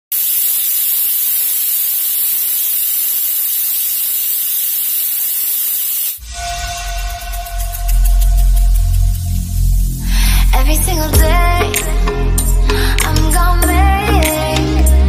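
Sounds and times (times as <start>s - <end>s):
pressure cooker hissing: 0.1s - 6.2s, 7.5s - 10.5s
music: 6.2s - 15.0s.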